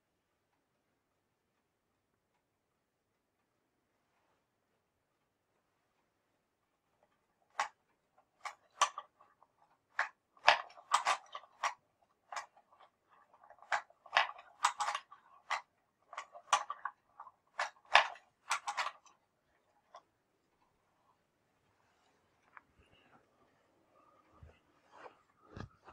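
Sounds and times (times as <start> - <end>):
wooden mechanism clicking: 7.1 - 20.0.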